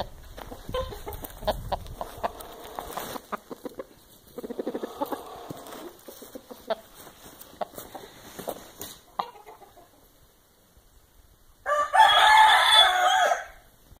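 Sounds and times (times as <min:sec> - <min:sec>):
rooster crowing: 0:11.6 - 0:13.7.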